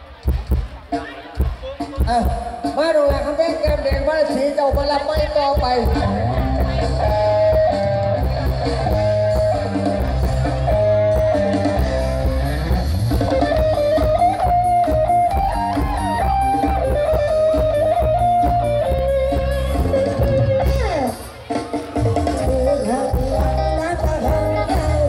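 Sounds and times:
steady drum beat: 0.0 - 25.0
heavy pulsing bass: 5.6 - 21.0.

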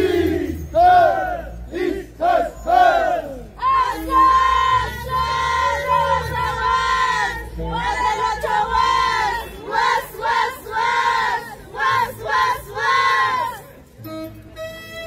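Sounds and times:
women's chorus singing and whooping: 0.0 - 13.6.

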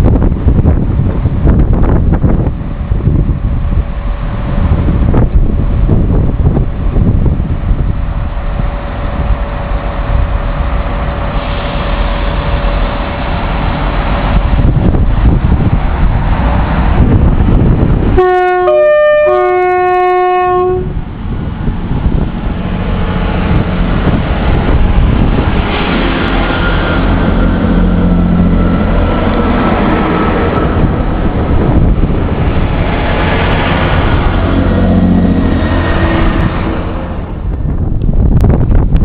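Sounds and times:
train rumbling along platform: 0.0 - 39.0
train two-tone horn: 18.1 - 21.0, 34.4 - 36.4.

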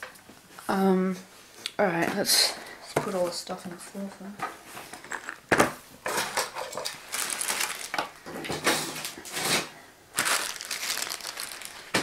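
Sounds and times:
plastic bags rustling: 6.0 - 12.0.

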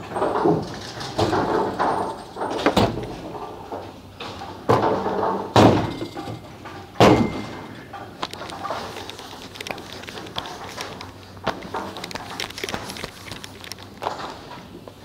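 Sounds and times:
bowling balls striking pins: 0.0 - 10.1.

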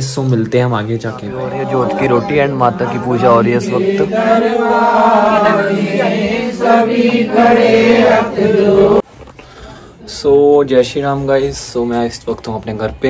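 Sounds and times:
voices singing devotional chant: 1.0 - 9.1.

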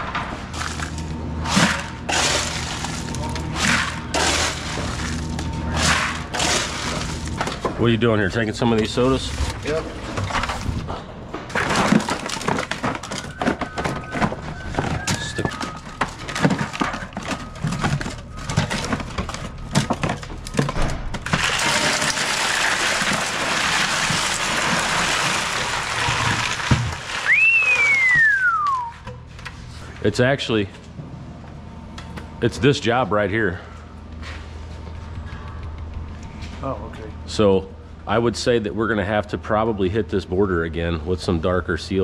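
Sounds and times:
ice pouring: 21.2 - 28.2
falling whistle-like tone: 27.2 - 29.1.

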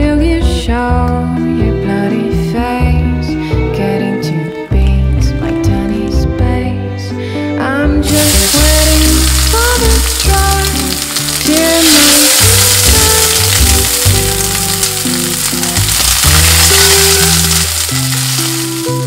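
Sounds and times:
background music: 0.0 - 19.0
meat sizzling in a frying pan: 8.0 - 19.0.

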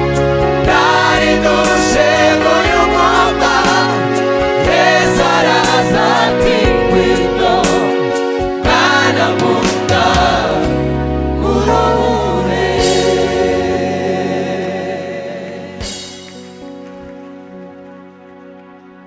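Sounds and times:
instrumental backing: 0.0 - 19.0
choir singing: 0.5 - 16.4.

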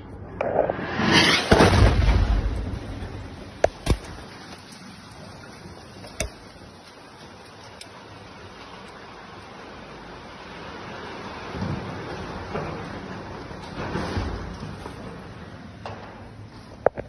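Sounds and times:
deep explosion blast: 0.2 - 3.9.

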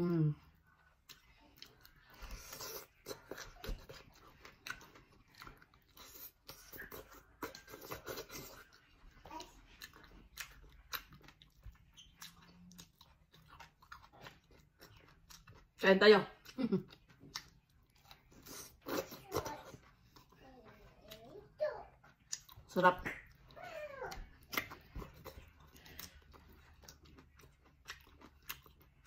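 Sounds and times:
person chewing wet crunches: 0.5 - 15.8, 16.4 - 29.0.

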